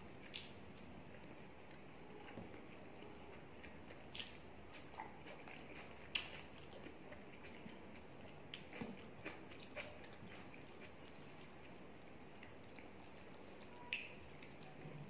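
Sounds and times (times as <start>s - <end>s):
wet eating smacks: 0.2s - 0.9s, 3.9s - 11.8s.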